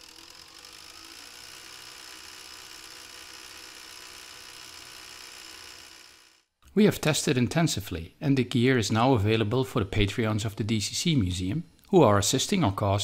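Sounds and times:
cassette deck winding whir: 0.0s - 6.5s.

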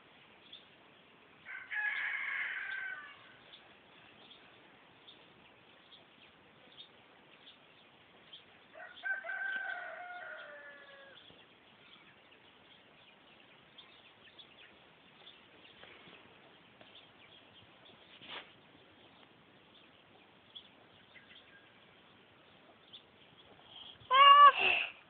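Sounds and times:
rooster crowing: 1.5s - 3.4s, 8.7s - 11.2s.

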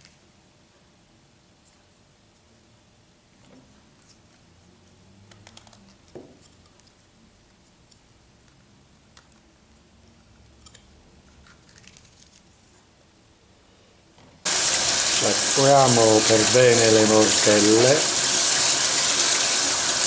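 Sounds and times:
tap running into colander: 14.5s - 20.0s.

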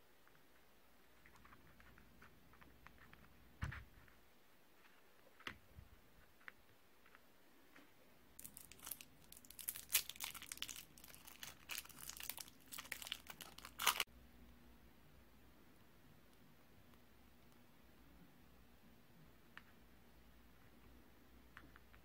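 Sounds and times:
candy wrapper crinkling: 8.4s - 14.1s.

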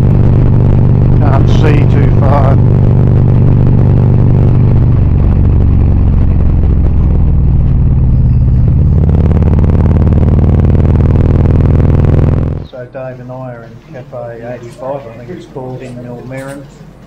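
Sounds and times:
motorcycle engine running: 0.0s - 12.7s.

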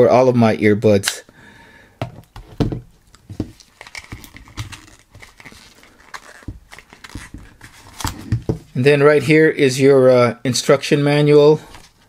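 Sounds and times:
small items tapping and clicking: 3.1s - 8.7s.

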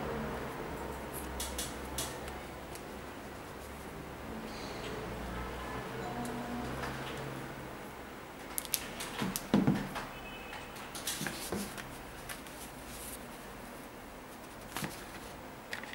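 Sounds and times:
cloth rustling: 11.1s - 15.4s.

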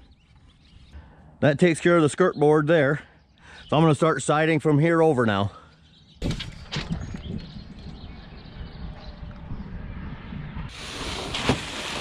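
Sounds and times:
wind buffeting microphone: 6.2s - 12.0s.

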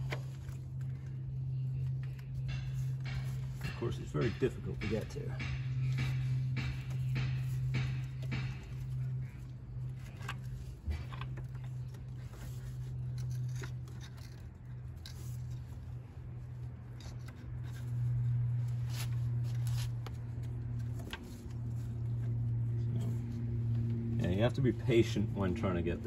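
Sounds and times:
low steady hum: 0.0s - 26.0s
clicks and scrapes of connectors: 8.3s - 21.8s.

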